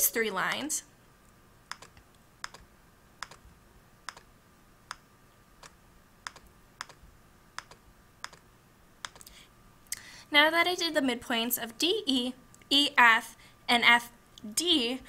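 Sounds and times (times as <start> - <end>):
computer mouse button clicking: 1.7 - 2.6, 3.2 - 3.4, 4.1 - 4.3, 5.6 - 7.0, 7.6 - 8.4, 9.0 - 9.3.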